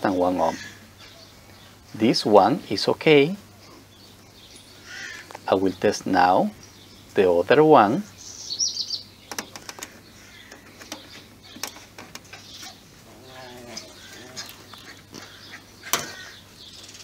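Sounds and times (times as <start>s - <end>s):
birds calling faintly: 0.0s - 17.0s
test probes clicking and knocking: 9.3s - 12.5s.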